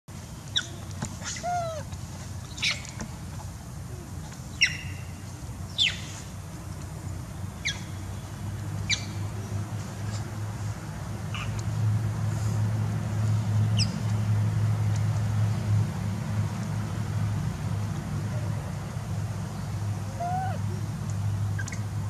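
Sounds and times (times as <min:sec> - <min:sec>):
high-pitched chirping calls: 0:00.5 - 0:01.8.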